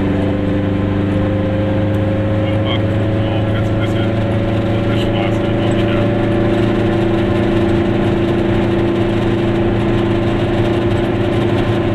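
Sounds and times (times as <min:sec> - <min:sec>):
two-stroke car engine running: 0:00.0 - 0:11.9.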